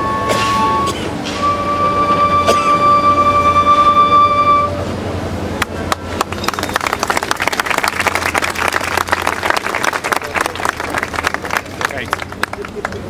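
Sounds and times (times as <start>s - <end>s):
high wind instrument note: 0.0s - 5.2s
crowd applauding: 5.9s - 13.0s.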